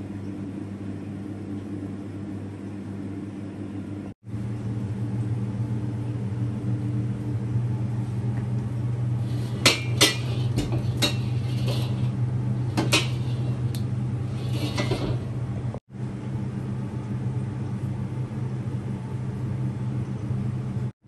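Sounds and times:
gas burner hum: 0.0s - 21.0s
metal wok clanking: 9.3s - 13.7s, 14.3s - 15.3s.

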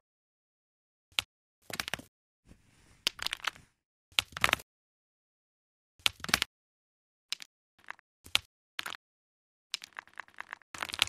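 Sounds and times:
small hard tiles clacking: 9.8s - 11.0s.

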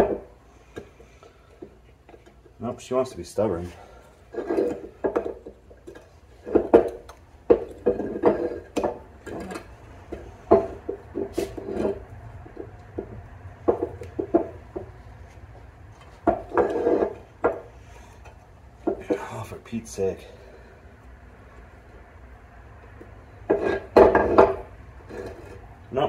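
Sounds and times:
tool scraping metal: 3.7s - 12.1s, 16.3s - 18.2s.

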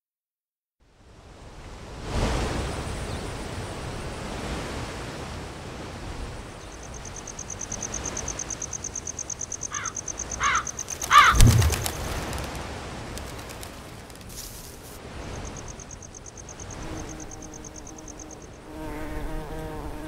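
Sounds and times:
bird calls: 6.6s - 12.6s
insect trilling: 6.8s - 12.6s, 15.2s - 18.8s
steady rustling hiss: 6.9s - 18.4s
wing flaps: 10.8s - 15.0s
low thump: 11.3s - 12.0s.

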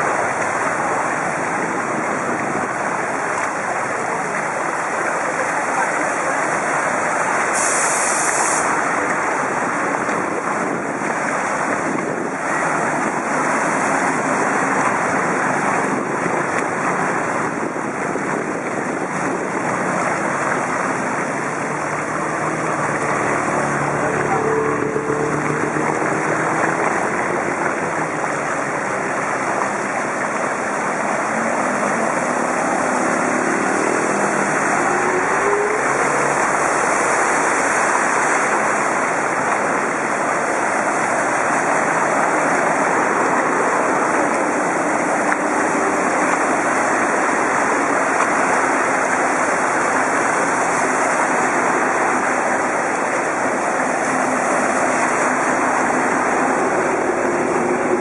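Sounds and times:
wind noise on microphone: 0.0s - 5.1s, 6.0s - 58.0s
water swishing: 0.0s - 58.0s.

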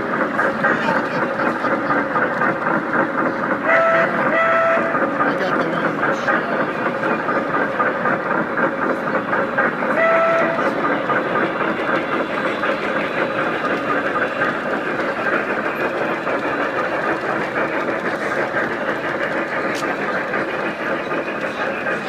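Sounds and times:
model steam train running: 0.0s - 22.0s
steam whistle toot: 3.7s - 4.9s, 10.0s - 10.7s.

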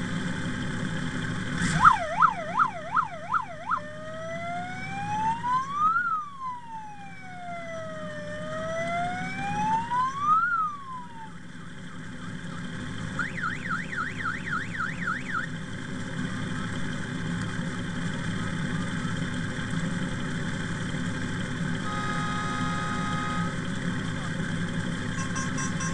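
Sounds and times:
motorcycles idling: 0.0s - 5.8s, 7.2s - 25.9s
warbling siren: 1.6s - 11.4s, 13.2s - 15.5s, 21.8s - 23.6s, 25.1s - 25.9s
steady electronic tone: 21.8s - 23.6s, 25.1s - 25.9s.

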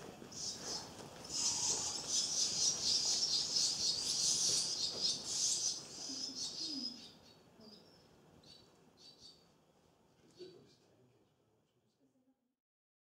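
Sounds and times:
nestlings cheeping: 0.4s - 7.1s.

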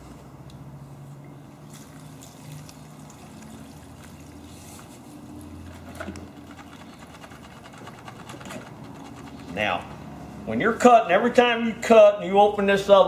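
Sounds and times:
gasoline trickling into a jug: 1.4s - 9.7s.

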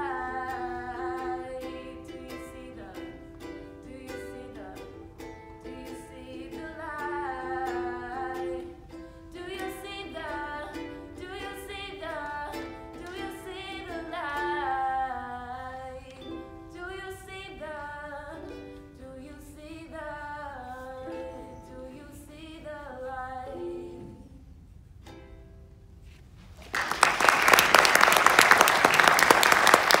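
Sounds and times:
woman singing: 0.0s - 24.4s
strummed ukulele: 0.0s - 26.2s
loud applause: 26.6s - 30.0s.

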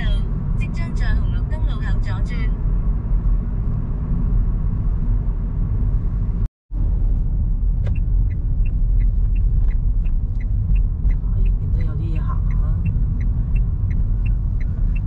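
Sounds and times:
car cabin road rumble: 0.0s - 15.0s
turn signal ticking: 7.4s - 15.0s.

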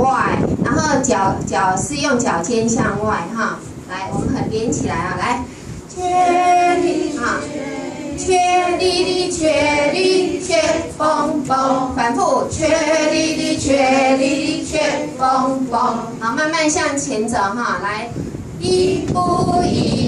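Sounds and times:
woman singing into microphone: 5.9s - 16.4s.

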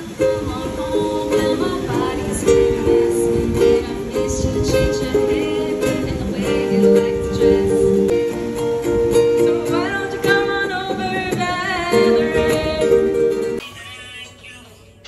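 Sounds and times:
person singing into a microphone: 0.0s - 8.1s, 9.6s - 15.0s
ukuleles strumming chords: 0.0s - 15.0s.

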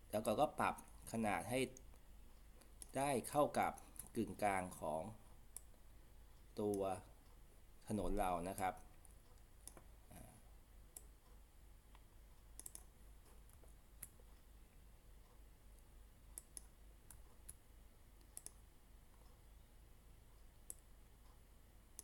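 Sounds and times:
low steady hum: 0.0s - 22.0s
computer mouse clicks: 1.7s - 3.0s, 5.5s - 5.8s, 9.0s - 9.9s, 10.9s - 14.4s, 15.8s - 17.6s, 18.2s - 19.4s, 20.6s - 22.0s.

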